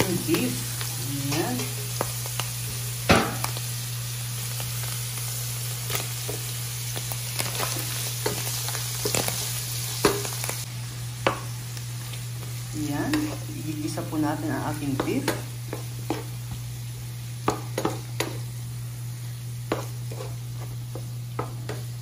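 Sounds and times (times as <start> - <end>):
meat sizzling in oil: 0.0 - 22.0
wooden spatula scraping pan: 19.7 - 21.9.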